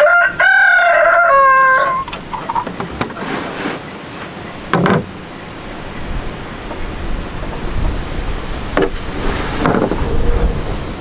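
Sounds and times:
rooster crowing: 0:00.0 - 0:02.2.

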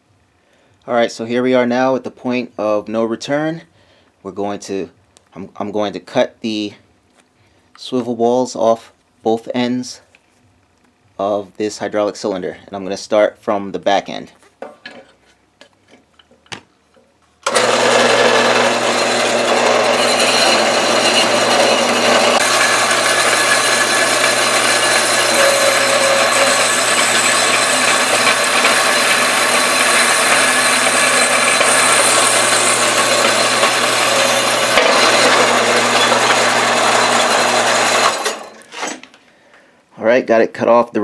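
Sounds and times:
bandsaw cutting metal: 0:17.4 - 0:39.0.

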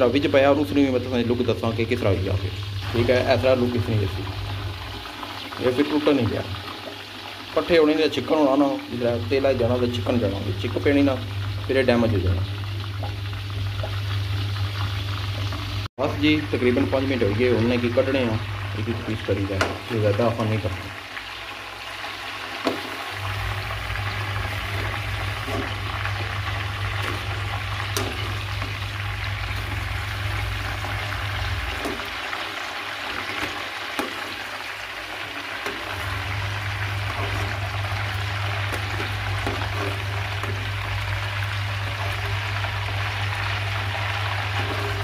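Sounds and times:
oil bubbling sizzle: 0:00.0 - 0:45.0
low steady hum: 0:23.2 - 0:32.2, 0:35.7 - 0:45.0.

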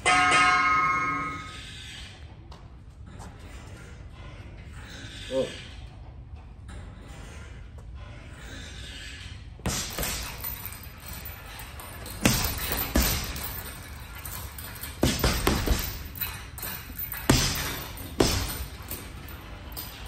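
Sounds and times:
gloves punching heavy bag: 0:09.6 - 0:11.3, 0:12.0 - 0:19.4.

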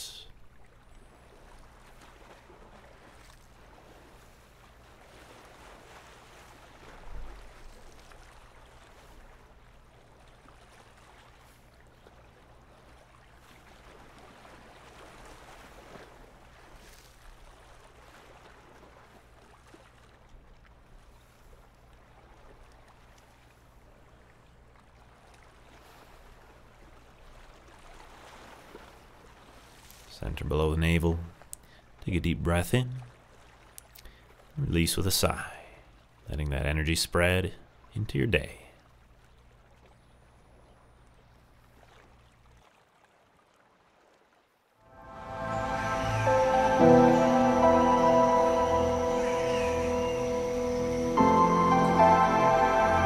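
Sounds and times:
water lapping on rocky shore: 0:00.4 - 0:30.1, 0:41.3 - 0:44.4
low hum: 0:44.8 - 0:53.0.

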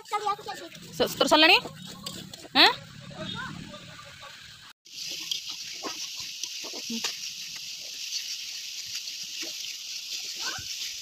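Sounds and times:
curry sizzling in a pan: 0:04.8 - 0:11.0
spatula scraping a pan: 0:05.0 - 0:11.0.

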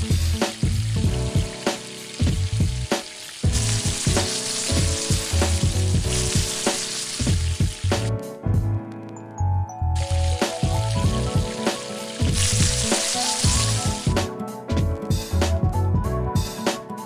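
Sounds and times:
pancake batter sizzling: 0:00.0 - 0:08.1, 0:10.0 - 0:14.2
background music with steady beat: 0:00.0 - 0:17.0.

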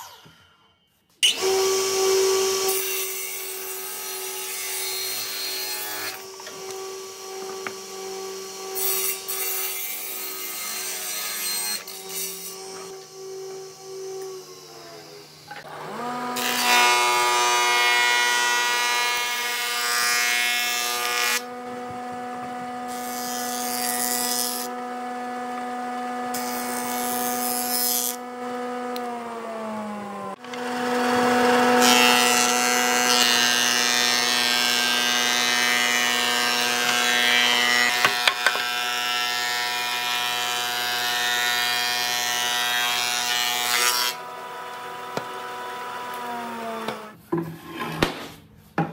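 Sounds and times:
cutterhead shaving boards: 0:01.2 - 0:48.2
planer motor humming: 0:21.4 - 0:23.0, 0:24.7 - 0:27.4, 0:28.2 - 0:33.1.

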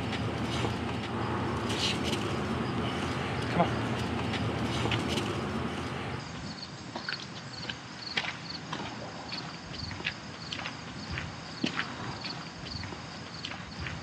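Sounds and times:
footsteps walking: 0:00.0 - 0:06.2.

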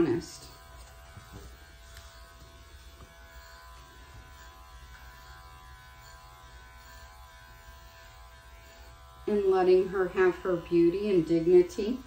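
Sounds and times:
electric clippers buzzing: 0:00.0 - 0:12.0.

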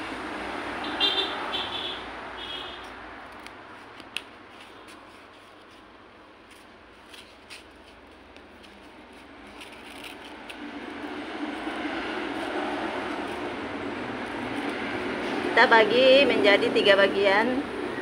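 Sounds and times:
scissors snipping foam: 0:02.8 - 0:10.8
foam pieces clicking and rustling: 0:06.5 - 0:10.7.

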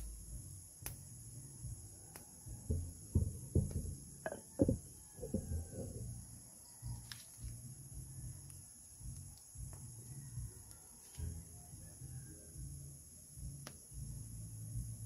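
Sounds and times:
high-pitched insect drone: 0:00.0 - 0:15.0
soft low knocks: 0:02.5 - 0:06.2.

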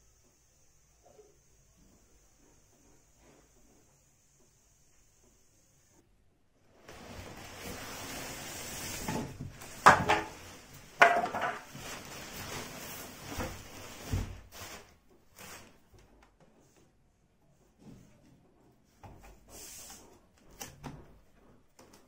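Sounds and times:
rustling and scraping: 0:06.8 - 0:22.0.

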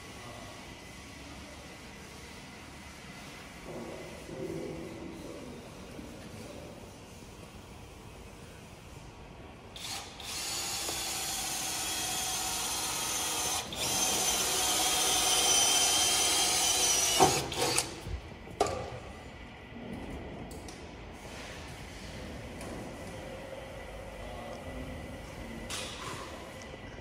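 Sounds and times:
power tool whining: 0:09.8 - 0:18.0.

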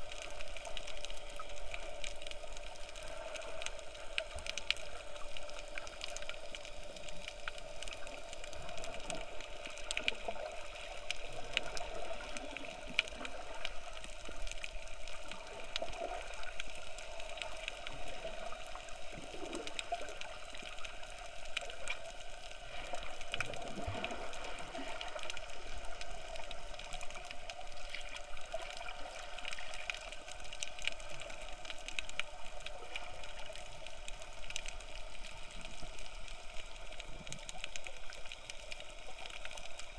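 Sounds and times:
crackle of faint clicks: 0:00.0 - 0:39.9
underwater hum: 0:00.0 - 0:39.9.

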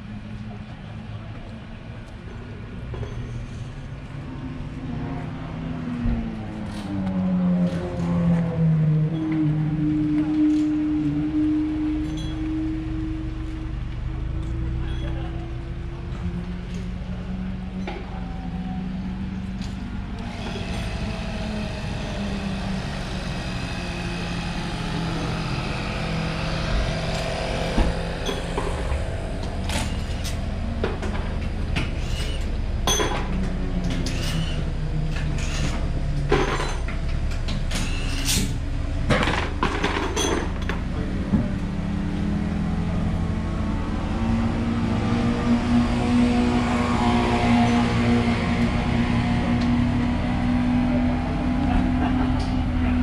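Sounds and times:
car engine idling: 0:18.0 - 0:33.8.

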